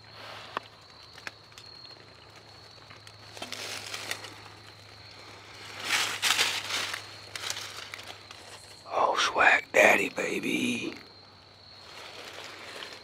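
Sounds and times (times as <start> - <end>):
dry leaves crunching and rustling: 5.7 - 8.3, 11.8 - 13.0.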